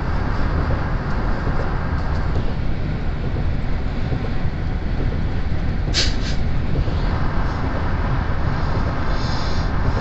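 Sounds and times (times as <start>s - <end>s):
tyre and wind rumble: 0.0s - 10.0s
short hisses: 5.9s - 6.4s, 9.1s - 9.7s.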